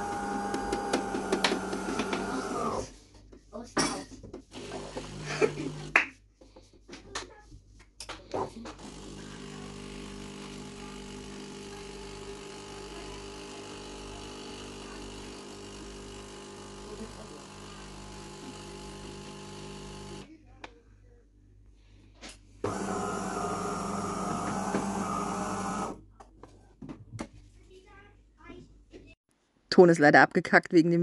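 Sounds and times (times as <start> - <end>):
electric motor humming: 0.0 - 2.9, 4.6 - 6.0, 8.7 - 20.3, 22.6 - 26.0.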